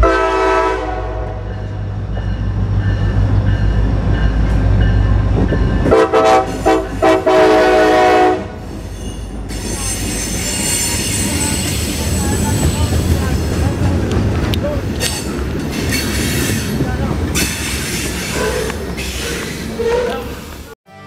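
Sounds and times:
train horn blasts: 0.0 - 1.6, 5.8 - 8.7
diesel locomotive engine drone: 0.0 - 21.0
train wheel squeal: 8.6 - 13.0, 17.4 - 20.7.

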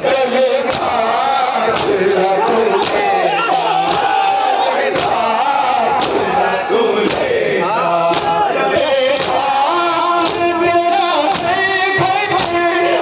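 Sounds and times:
men chanting together: 0.0 - 13.0
hands striking chests: 0.6 - 1.0, 1.7 - 2.1, 2.7 - 3.1, 3.8 - 4.2, 4.9 - 5.3, 6.0 - 6.3, 7.0 - 7.4, 8.1 - 8.4, 9.1 - 9.5, 10.2 - 10.6.

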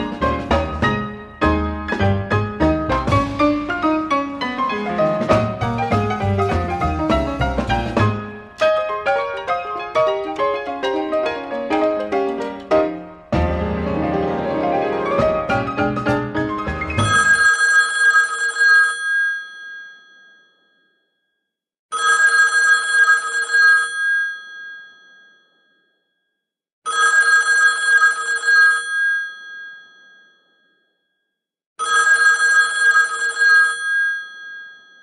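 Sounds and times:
telephone bell ringing: 17.0 - 21.0, 21.9 - 25.8, 26.9 - 30.7, 31.8 - 35.0.

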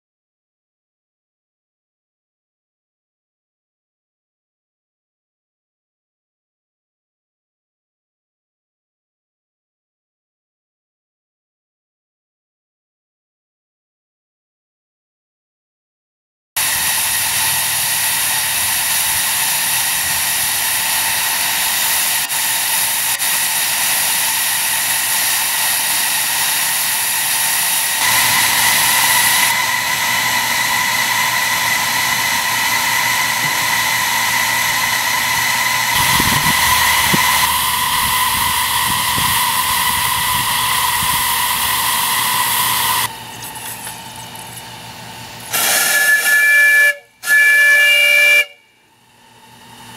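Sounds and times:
steam locomotive hissing steam: 16.6 - 43.3, 45.1 - 48.6.

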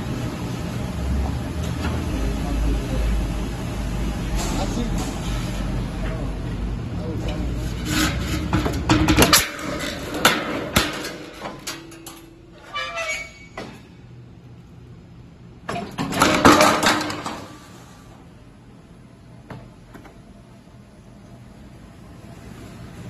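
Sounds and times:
steel rushing scrape: 7.5 - 8.9.

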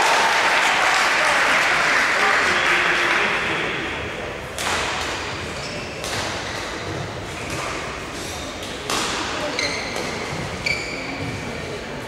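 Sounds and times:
audience applause: 0.0 - 3.9.

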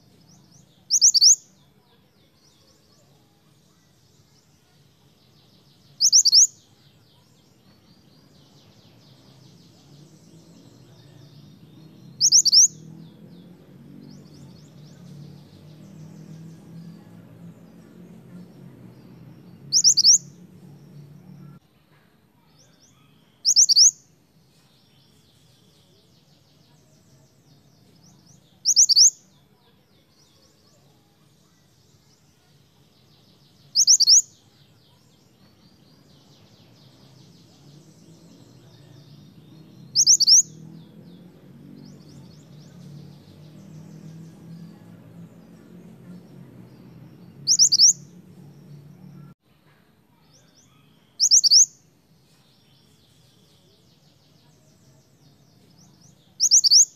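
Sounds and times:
faint bird twittering: 0.0 - 21.6, 22.3 - 49.4, 50.1 - 56.9
bird high rising calls: 0.9 - 1.4, 6.0 - 6.5, 10.5 - 13.0, 19.4 - 20.4, 23.0 - 24.0, 28.6 - 29.1, 33.8 - 34.3, 37.9 - 40.7, 47.3 - 48.1, 50.7 - 51.7, 56.4 - 56.9.

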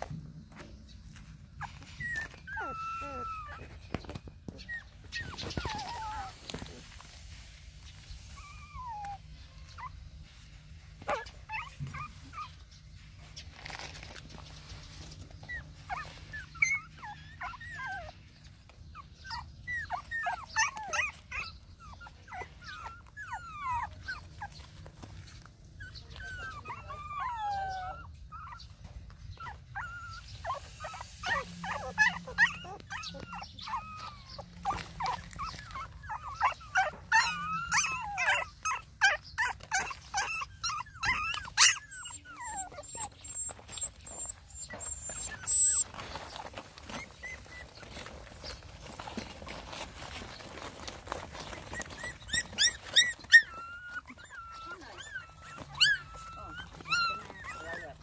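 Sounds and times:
puppies whimpering and whining: 0.0 - 58.0.

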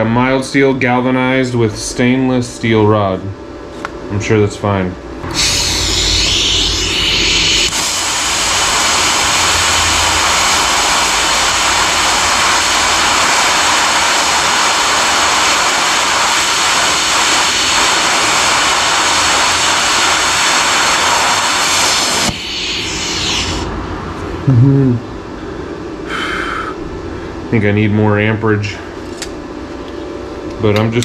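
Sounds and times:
welding arc hissing: 5.2 - 23.8.

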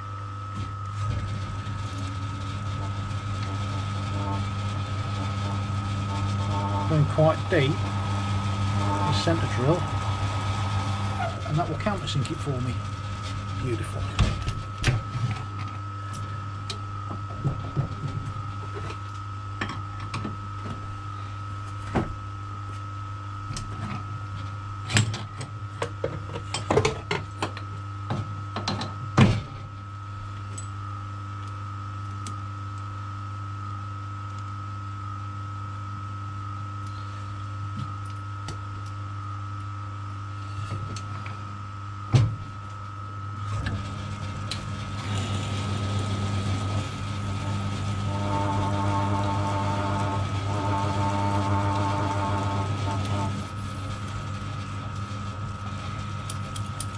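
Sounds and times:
metal lathe humming and whining: 0.2 - 27.7, 39.1 - 56.9.

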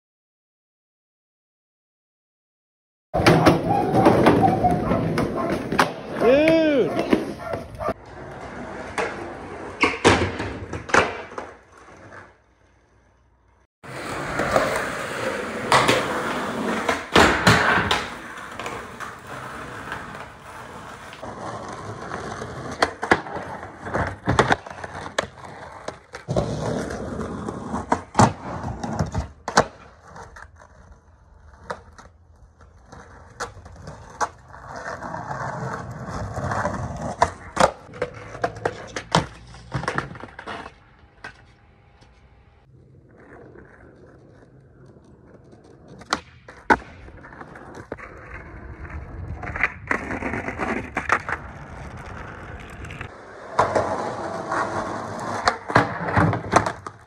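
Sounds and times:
skateboard pops and clacks: 3.2 - 7.9, 8.9 - 11.7, 15.6 - 30.6, 36.4 - 42.3, 44.2 - 57.0
skateboard wheels rolling on concrete: 3.2 - 57.0.

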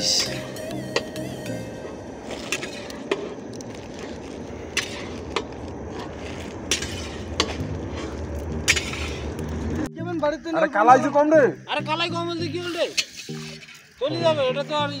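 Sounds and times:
metal spatula scraping iron pan: 6.0 - 8.1.

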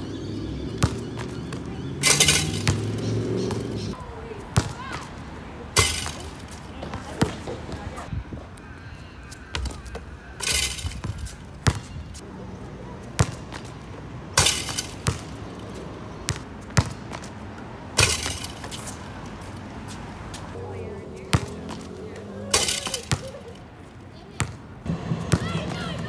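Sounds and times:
basketball bouncing on court: 0.1 - 3.9, 4.6 - 5.0, 5.8 - 8.0, 9.5 - 12.2, 13.2 - 13.8, 14.4 - 17.4, 21.2 - 23.4, 24.4 - 26.0
basketball rim rattling clangs: 2.0 - 3.0, 5.8 - 6.4, 10.4 - 11.2, 14.4 - 15.4, 18.0 - 18.9, 22.5 - 23.3.

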